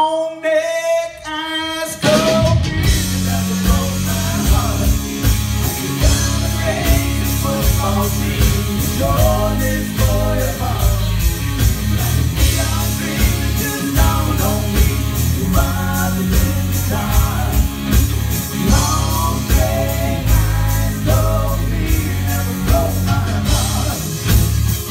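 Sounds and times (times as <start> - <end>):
man singing: 0.0 - 24.5
country-rock band playing: 0.4 - 24.9.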